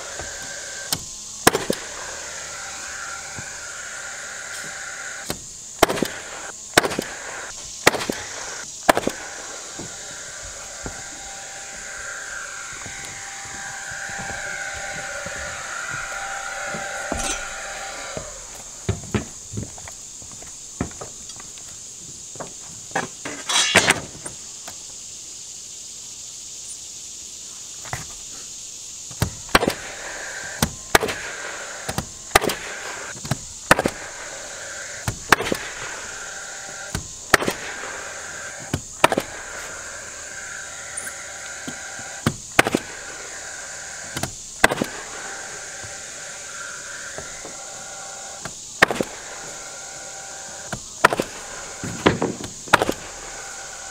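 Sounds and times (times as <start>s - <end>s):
nail gun firing into plywood: 0.4s - 2.0s, 5.2s - 10.0s, 29.2s - 34.3s, 35.0s - 35.9s, 36.9s - 39.6s, 42.2s - 43.2s, 44.1s - 45.3s, 48.8s - 49.3s, 51.0s - 53.9s.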